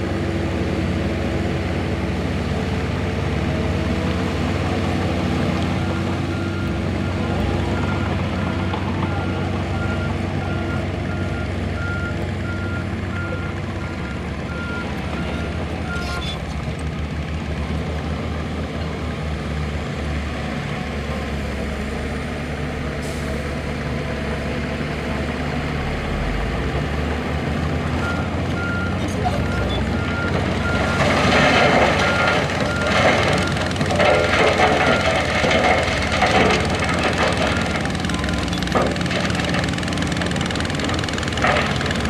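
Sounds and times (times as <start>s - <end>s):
heavy machinery running: 23.0s - 42.0s.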